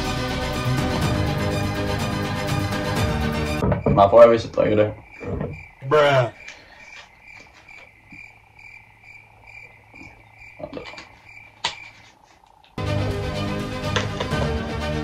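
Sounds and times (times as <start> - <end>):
chirping sound effect: 3.8 - 12.0.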